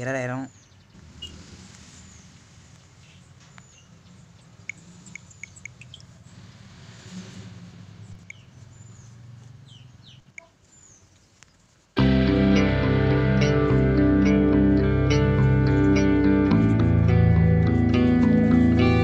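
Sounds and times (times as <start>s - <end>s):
small birds chirping faintly: 0.0s - 12.0s.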